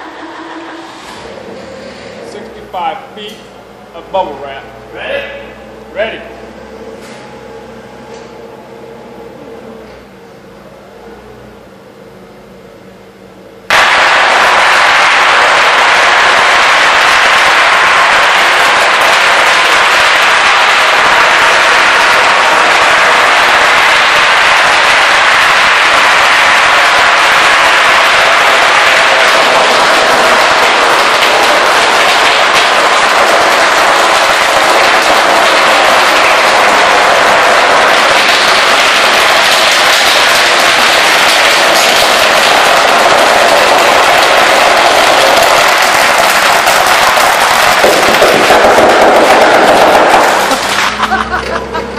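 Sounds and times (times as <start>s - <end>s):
bubble wrap popping under tyres: 15.2s - 51.0s.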